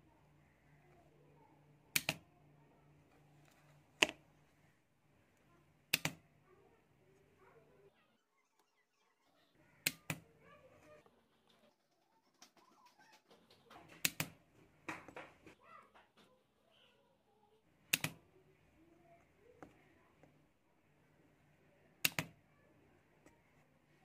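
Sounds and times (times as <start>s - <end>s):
faint handling noise: 2.9s - 5.6s, 18.0s - 24.0s.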